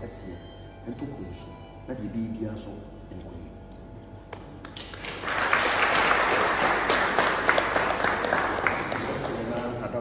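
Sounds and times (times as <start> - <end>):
people clapping: 4.3 - 10.0.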